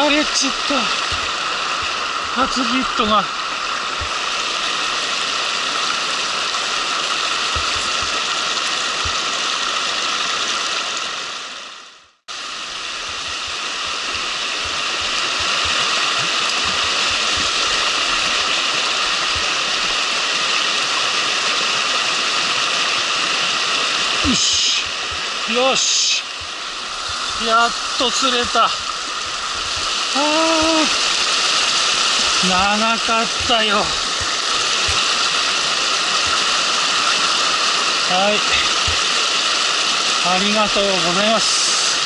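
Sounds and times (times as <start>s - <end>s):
stream rushing over rocks: 0.0s - 42.0s.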